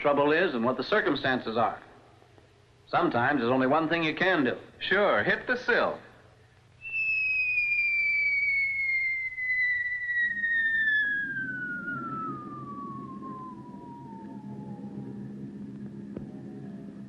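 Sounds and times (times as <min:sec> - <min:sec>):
falling whistle: 0:06.8 - 0:17.0
low rumble: 0:09.6 - 0:17.0.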